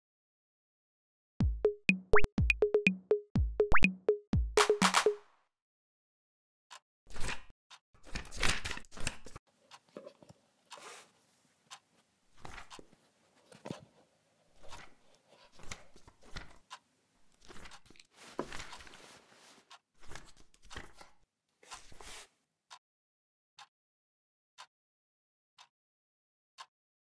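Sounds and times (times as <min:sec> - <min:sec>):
paper rustling and crinkling: 0:17.6 - 0:20.3.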